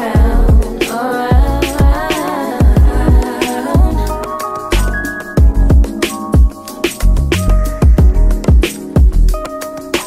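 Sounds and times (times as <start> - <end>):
r and b song with vocals: 0.0 - 8.9.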